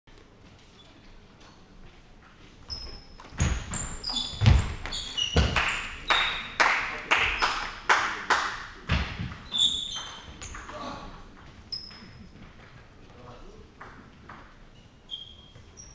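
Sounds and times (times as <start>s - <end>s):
table tennis ball bouncing: 2.7s - 6.4s, 8.9s - 12.9s, 13.7s - 14.7s.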